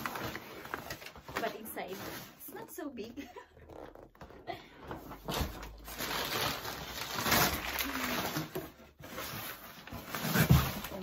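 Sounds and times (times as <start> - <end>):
cardboard scraping and rustling: 3.8 - 11.0.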